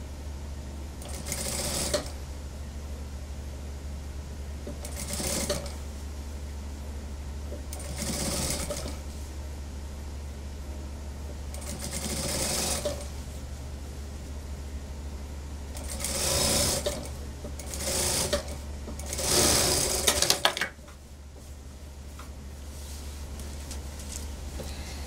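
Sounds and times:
steady low hum: 0.0s - 25.0s
sewing machine stitching: 1.0s - 2.1s, 4.7s - 5.8s, 7.7s - 9.0s, 11.5s - 13.1s, 15.8s - 20.5s.

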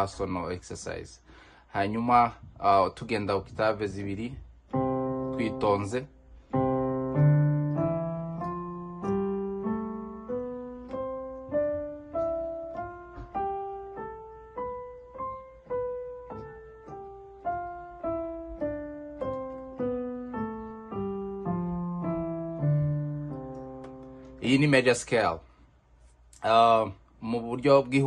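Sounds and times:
piano scale played slowly: 4.2s - 25.0s.

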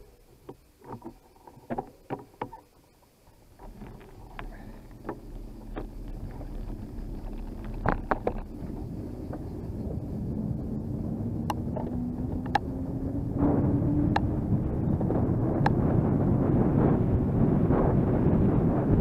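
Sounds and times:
rolling road noise: 0.0s - 19.0s
sharp clicks and knocks from bumps: 0.4s - 9.5s, 11.4s - 12.7s
wind buffeting microphone: 3.3s - 19.0s
low hum rising in pitch: 3.4s - 19.0s.

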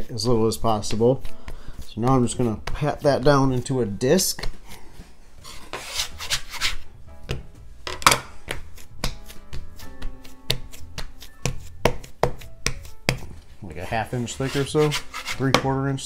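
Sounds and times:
hands patting dough on wood: 0.0s - 5.1s, 8.3s - 15.8s.

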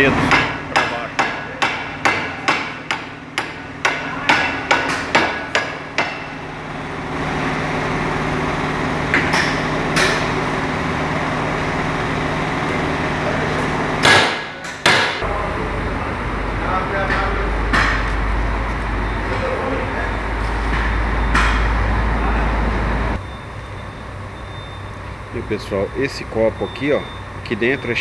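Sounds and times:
hammer striking steel: 0.2s - 6.4s, 9.1s - 10.4s, 14.0s - 15.3s, 17.0s - 18.2s, 20.6s - 21.8s.

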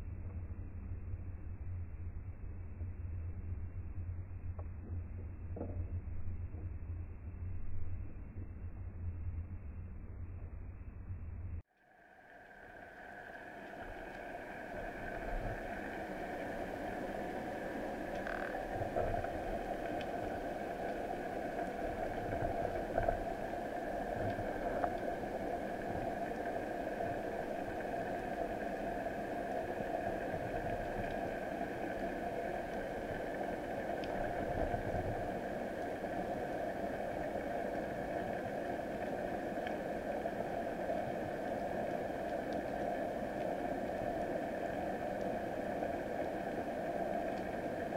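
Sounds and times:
muffled underwater hiss: 11.8s - 47.9s
faint clicks: 13.2s - 47.9s.

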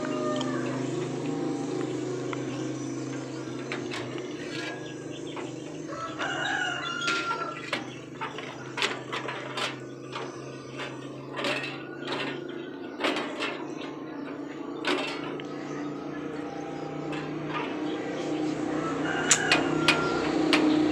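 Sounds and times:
rooster crowing: 0.0s - 1.2s, 5.4s - 8.2s, 17.3s - 20.8s
low hum: 0.0s - 20.9s
metallic clicks and knocks: 0.4s - 20.9s.

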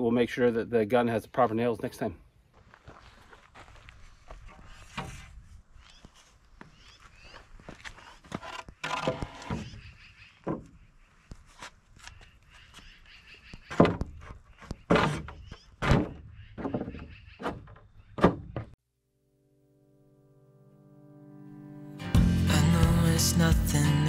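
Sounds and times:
footsteps: 2.5s - 9.8s
wooden boards knocking on concrete: 13.7s - 18.8s
music: 19.6s - 24.0s.

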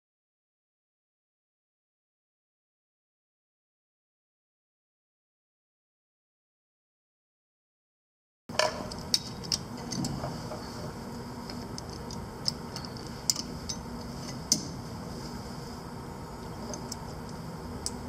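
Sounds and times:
steady low hum: 8.5s - 18.0s.

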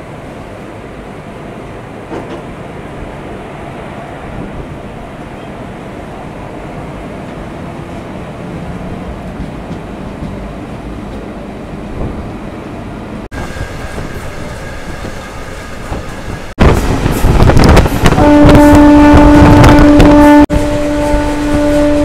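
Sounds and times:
train wheels rumbling on track: 0.0s - 22.0s
loud steady tone: 17.3s - 22.0s.

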